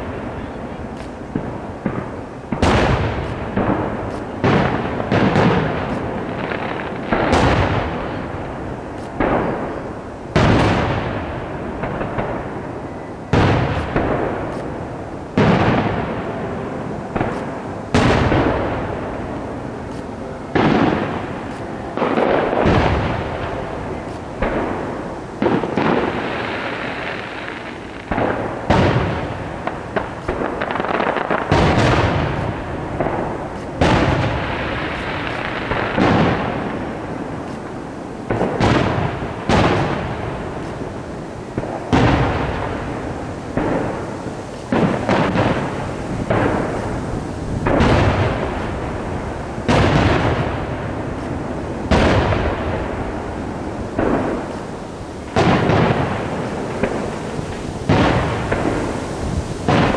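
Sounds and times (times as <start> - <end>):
small firework pops: 0.0 - 16.3, 17.1 - 59.9
firework shells bursting: 0.0 - 59.9.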